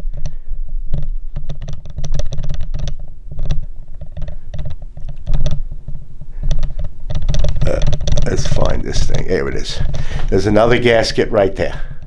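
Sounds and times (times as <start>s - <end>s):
small parts clicking and tapping: 0.0s - 9.2s.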